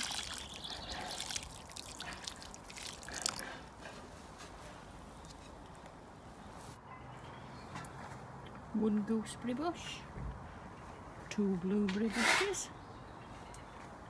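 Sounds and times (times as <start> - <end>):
water dripping: 0.0 - 3.6
water crackling in compost: 0.0 - 4.6.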